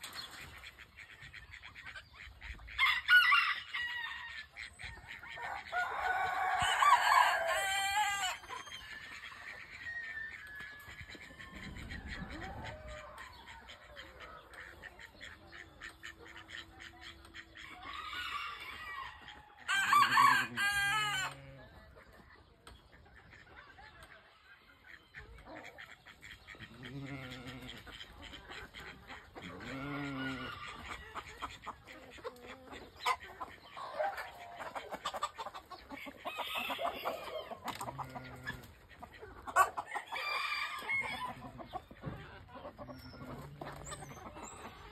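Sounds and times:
chickens clucking: 0.0s - 44.9s
rooster crowing: 2.8s - 4.2s, 5.5s - 8.4s, 19.7s - 21.4s.

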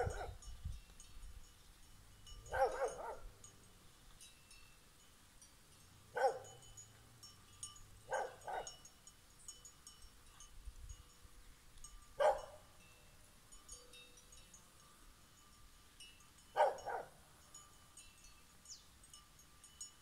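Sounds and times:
dog barking: 0.0s - 0.4s, 2.5s - 3.3s, 6.1s - 6.5s, 8.1s - 8.8s, 12.2s - 12.6s, 16.6s - 17.1s
faint high tinkling: 0.0s - 20.0s.

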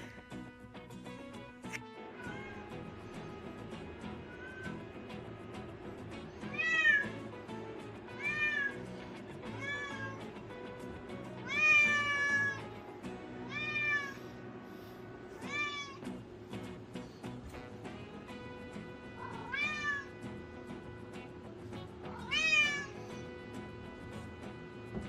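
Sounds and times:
background music: 0.0s - 25.0s
cat meowing: 2.2s - 2.8s, 4.1s - 4.8s, 6.5s - 7.2s, 8.1s - 8.8s, 9.4s - 10.3s, 11.4s - 12.8s, 13.4s - 14.2s, 15.4s - 16.1s, 19.2s - 20.1s, 22.1s - 23.2s.

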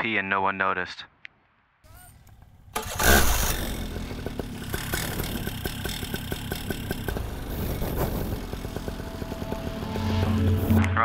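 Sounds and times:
paramotor engine idling: 2.1s - 10.8s
irregular ticking clatter: 2.2s - 10.7s.

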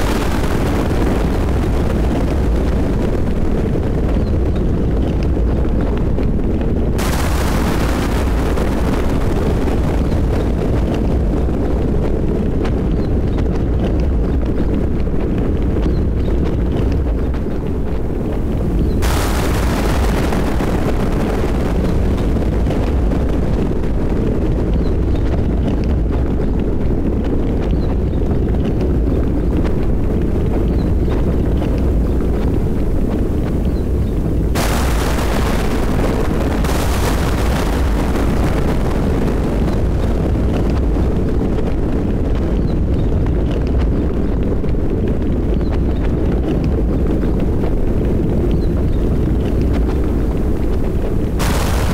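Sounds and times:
rain hissing: 0.0s - 4.5s, 6.9s - 12.1s, 18.5s - 24.9s, 31.5s - 41.4s, 49.8s - 51.9s
low rumble of thunderstorm: 0.0s - 51.9s
thunderclap: 0.0s - 51.9s.

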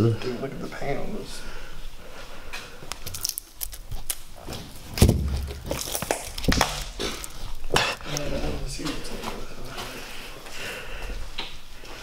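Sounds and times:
footsteps: 1.8s - 12.0s
heavy thump: 5.0s - 5.8s.

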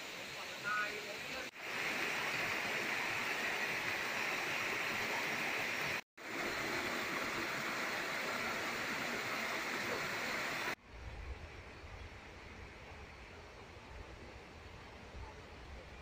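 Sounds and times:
small waterfall rushing: 0.0s - 10.8s
stream tumbling over rocks: 1.6s - 10.8s.

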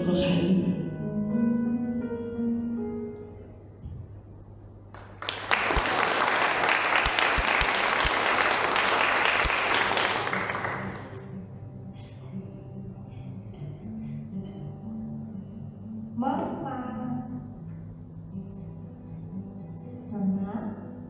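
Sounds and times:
soft music: 0.0s - 3.8s, 10.4s - 21.0s
applause: 4.9s - 11.2s.

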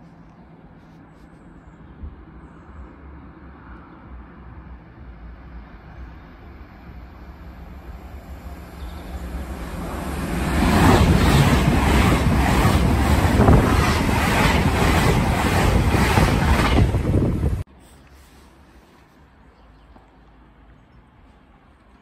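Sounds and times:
train rushing past: 4.7s - 17.7s.

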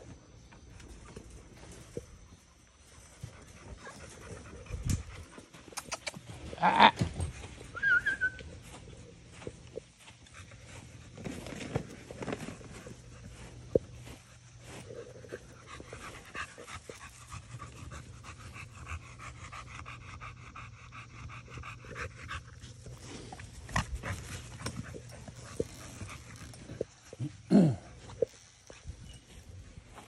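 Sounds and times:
dog panting: 12.2s - 27.4s.

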